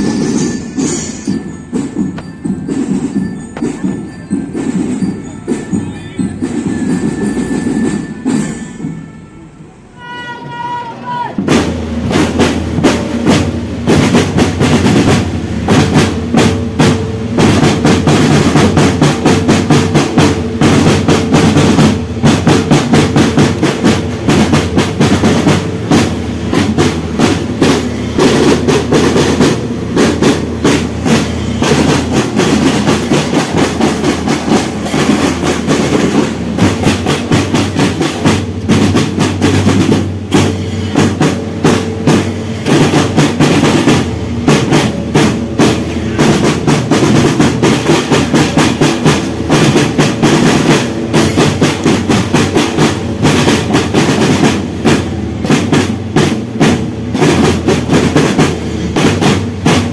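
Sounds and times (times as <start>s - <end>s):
marching glockenspiels: 0.0s - 9.4s
marching drum band: 0.0s - 59.9s.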